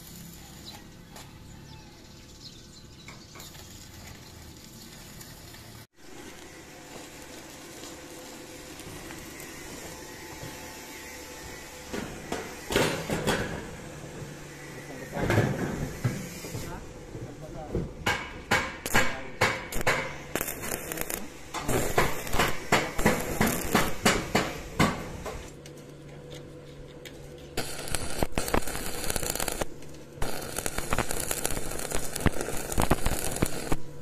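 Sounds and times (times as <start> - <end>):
welding arc crackling: 0.0 - 0.8, 3.4 - 13.4, 16.4 - 25.6, 27.6 - 34.0.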